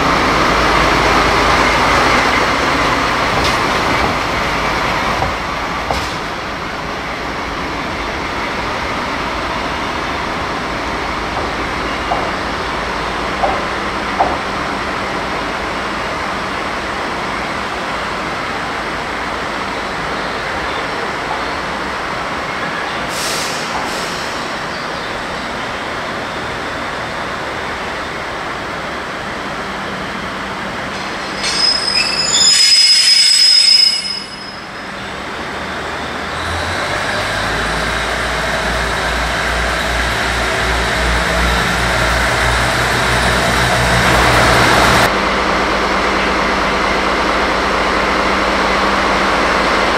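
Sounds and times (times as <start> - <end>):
loud high air hiss: 23.1 - 24.6.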